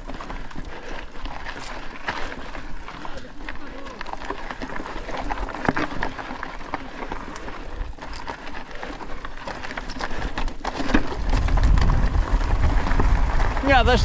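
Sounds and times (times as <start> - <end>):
bike clicking and rattling: 0.0 - 14.0
tyres crunching on loose stones: 0.0 - 14.0
low rumble: 11.2 - 14.0.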